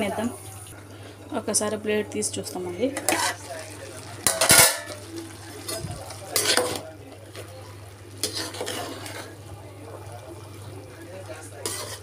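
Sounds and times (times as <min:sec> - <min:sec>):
metal lid clanking on pot: 0:04.2 - 0:05.0
metal spoon scraping rice in pot: 0:08.2 - 0:09.3, 0:11.6 - 0:12.0.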